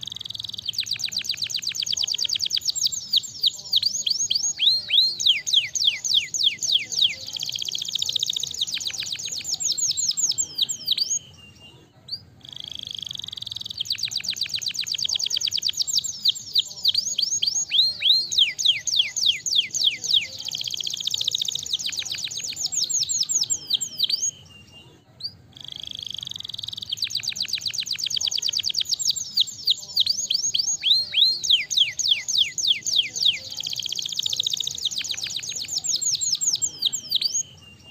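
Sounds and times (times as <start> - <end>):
canary singing trills: 0.0 - 37.9.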